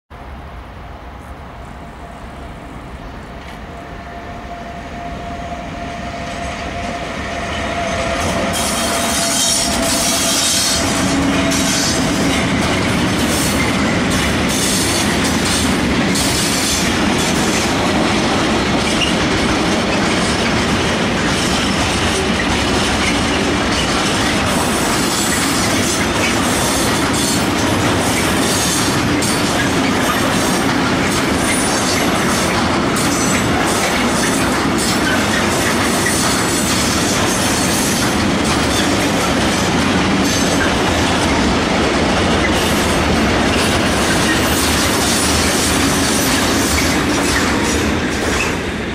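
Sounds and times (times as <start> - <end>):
freight train passing: 0.1 - 48.9
wheels clicking over rail joints: 11.0 - 41.6.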